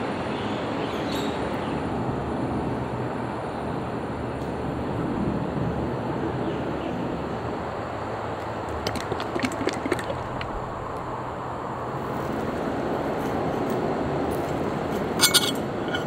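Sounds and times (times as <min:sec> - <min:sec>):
outdoor background hiss: 0:00.0 - 0:16.0
forks clinking on ceramic plate: 0:15.2 - 0:16.0.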